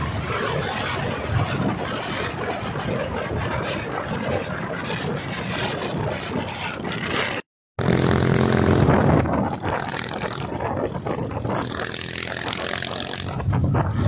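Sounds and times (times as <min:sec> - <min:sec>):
dense rushing noise: 0:00.0 - 0:14.0
motorcycle engine running: 0:06.0 - 0:14.0.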